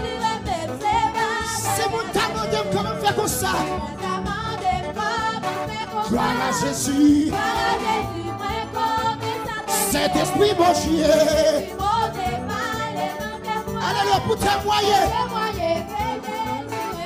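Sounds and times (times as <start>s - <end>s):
congregation singing: 0.0s - 17.0s
instrumental backing: 0.0s - 17.0s
man singing into a microphone: 1.5s - 3.9s, 6.0s - 7.5s, 9.7s - 11.8s, 13.8s - 15.3s.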